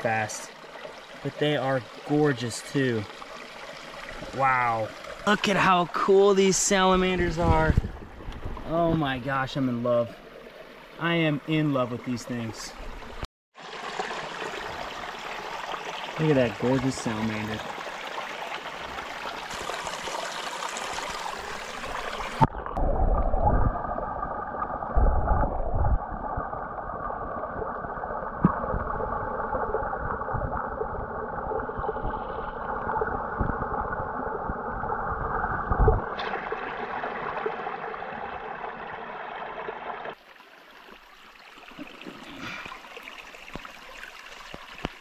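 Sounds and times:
stream water rushing: 0:00.0 - 0:22.6, 0:36.1 - 0:45.0
underwater gurgling: 0:18.2 - 0:45.0.

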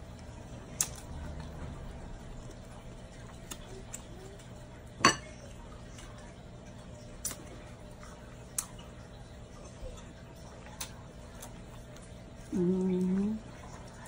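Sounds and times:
dishes clinking: 0:05.0 - 0:05.4.

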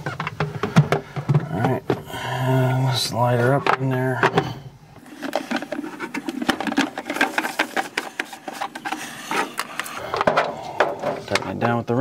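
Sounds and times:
plastic threads clicking and scraping: 0:05.0 - 0:11.7.

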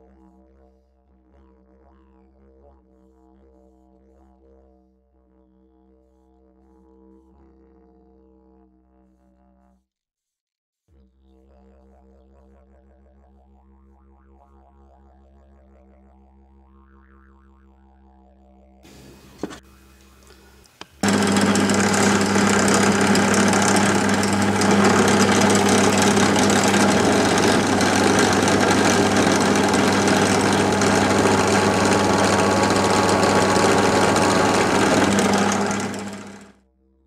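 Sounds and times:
electric motor running: 0:18.9 - 0:19.6, 0:20.6 - 0:36.5.

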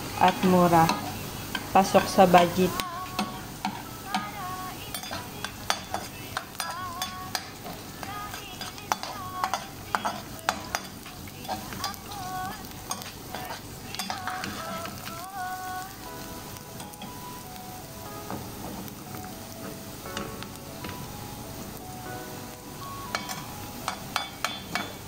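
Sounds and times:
onions sizzling in oil: 0:00.0 - 0:25.0
spoon clinking against pan: 0:00.2 - 0:12.2, 0:12.9 - 0:15.3, 0:23.0 - 0:25.0
metal spoon scraping pan: 0:04.9 - 0:12.1, 0:12.9 - 0:15.1.

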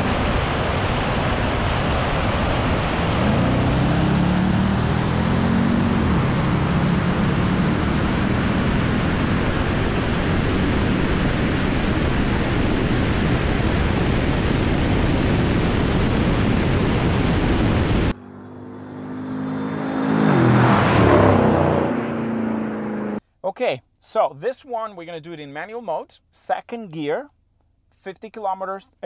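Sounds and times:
engine hum: 0:00.0 - 0:23.2
wind and road noise: 0:00.0 - 0:23.2
car passing at speed: 0:02.6 - 0:11.7, 0:18.1 - 0:23.2.

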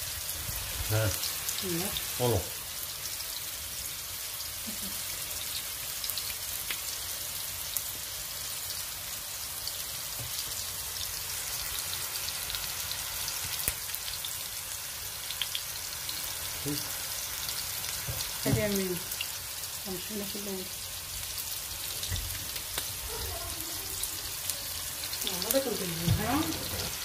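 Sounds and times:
food sizzling in hot oil: 0:00.0 - 0:27.0.

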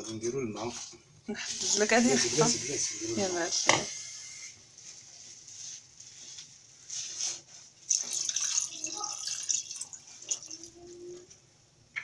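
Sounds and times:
water pouring into a pot: 0:07.9 - 0:10.8.

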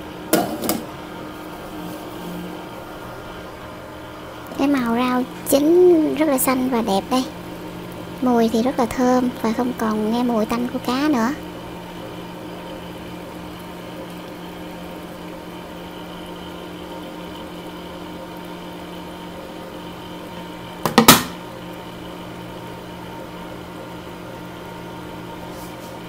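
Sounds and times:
machine hum: 0:00.0 - 0:26.0
loud knock: 0:20.8 - 0:21.4.

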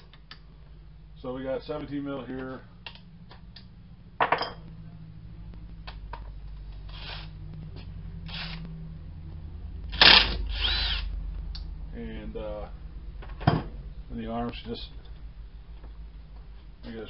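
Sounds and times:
impact wrench burst: 0:06.9 - 0:07.3, 0:08.2 - 0:08.6, 0:09.9 - 0:11.1.

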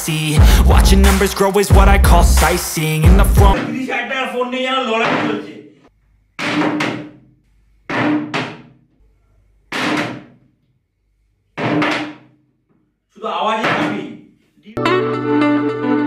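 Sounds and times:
heavy ringing thuds: 0:07.9 - 0:08.8.

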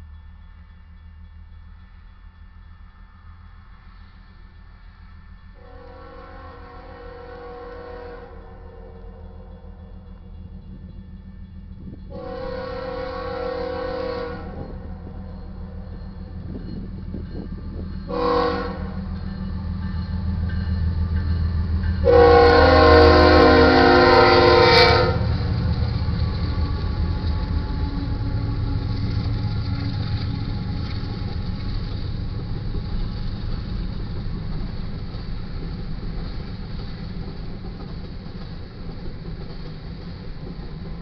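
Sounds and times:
freight cars rolling on rails: 0:00.0 - 0:41.0
locomotive engines rumbling: 0:00.0 - 0:41.0
locomotive air horn blasts: 0:05.6 - 0:09.0, 0:12.1 - 0:14.8, 0:18.1 - 0:19.1, 0:22.0 - 0:25.5.

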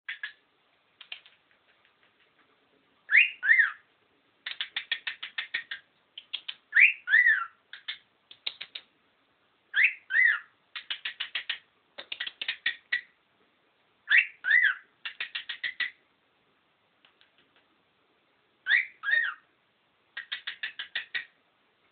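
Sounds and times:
cockatiel whistling and chirping: 0:03.1 - 0:03.8, 0:04.5 - 0:08.0, 0:09.7 - 0:11.6, 0:14.1 - 0:16.0, 0:18.6 - 0:19.4, 0:20.2 - 0:21.3.

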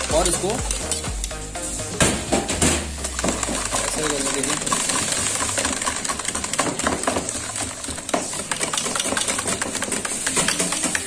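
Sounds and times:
whisk clicking against metal bowl: 0:03.0 - 0:11.0.

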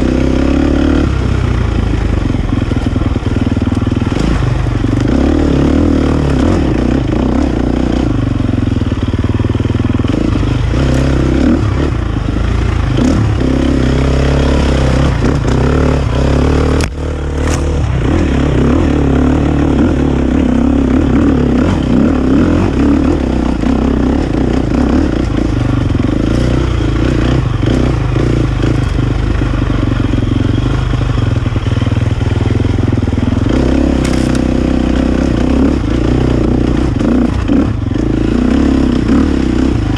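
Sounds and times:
clatter: 0:00.0 - 0:39.9
dirt bike engine revving: 0:00.0 - 0:39.9.

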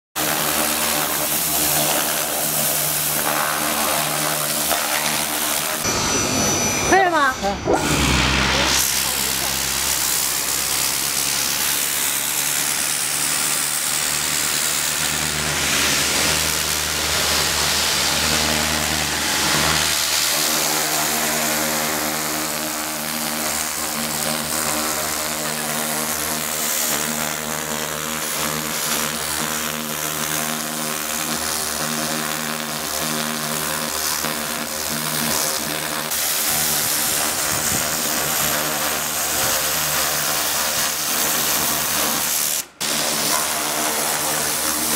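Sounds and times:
pressure washer jet hissing: 0:00.2 - 0:44.9.

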